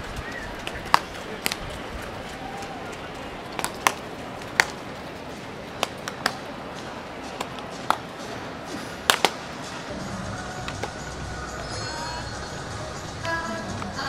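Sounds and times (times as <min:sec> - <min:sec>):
ballpark background noise: 0:00.0 - 0:14.0
baseballs smacking into gloves: 0:00.6 - 0:06.5, 0:07.3 - 0:08.1, 0:09.0 - 0:09.5, 0:10.6 - 0:11.0.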